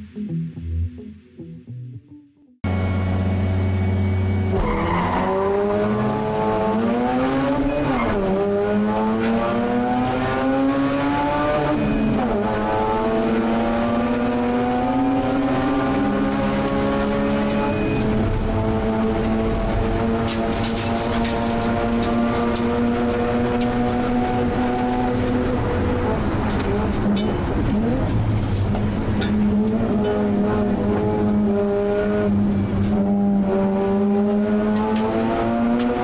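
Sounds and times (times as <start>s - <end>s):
rotary engine accelerating: 2.6s - 36.0s.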